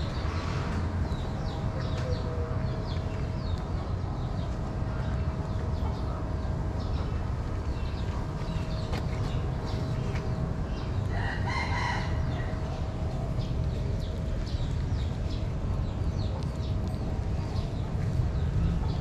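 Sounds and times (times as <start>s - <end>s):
steady low rumble: 0.0s - 19.0s
rooster crowing: 11.1s - 12.6s.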